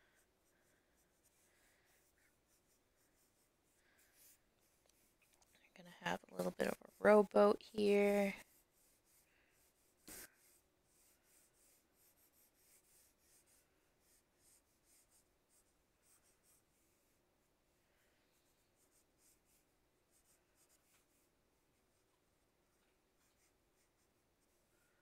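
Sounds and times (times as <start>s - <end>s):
pencil scratching on paper: 0.0s - 22.1s, 23.1s - 24.7s.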